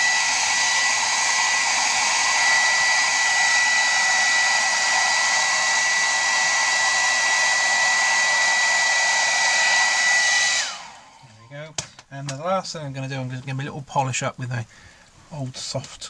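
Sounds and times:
hairdryer blowing: 0.0s - 11.4s.

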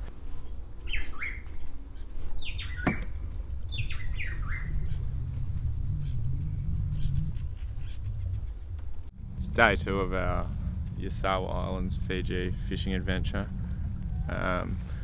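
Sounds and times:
steady low rumble: 0.0s - 15.0s
birds squawking: 0.8s - 9.1s.

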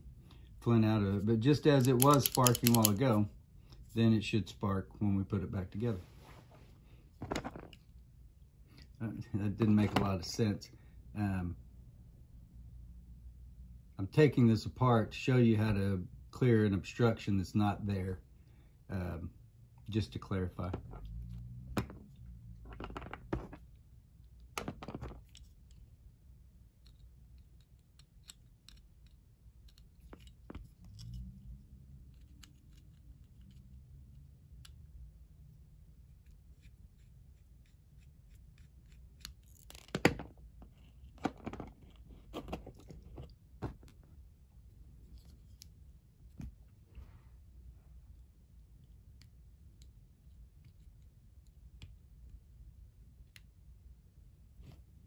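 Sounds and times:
small metal clicks and scrapes: 1.6s - 3.8s, 26.8s - 34.8s.

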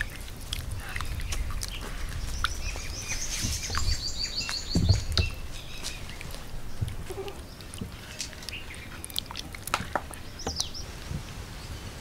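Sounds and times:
small bird chirping: 0.8s - 9.4s.

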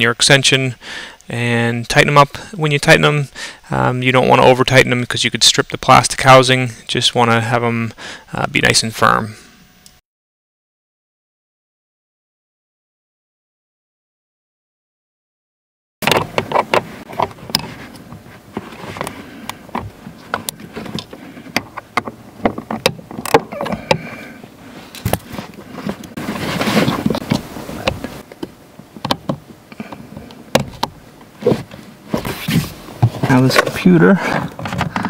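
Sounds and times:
clicks and rattles of hands working: 33.1s - 35.0s.

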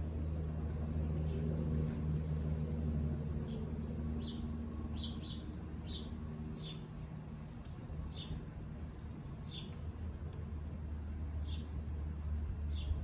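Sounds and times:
steady low rumble: 0.0s - 13.0s.

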